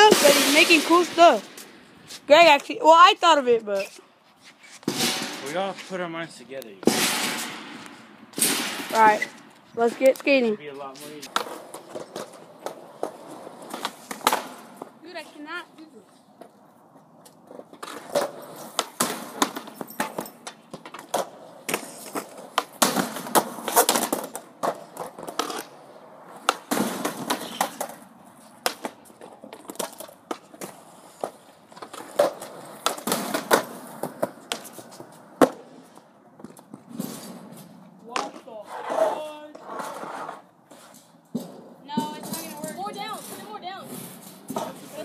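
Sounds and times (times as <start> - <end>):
skateboards clacking: 0.0 - 3.9, 6.6 - 45.0
skateboard wheels rolling on concrete: 0.0 - 45.0.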